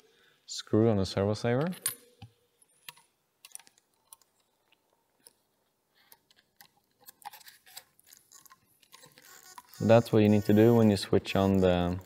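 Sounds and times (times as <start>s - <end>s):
faint clicks of small parts: 1.6s - 9.8s.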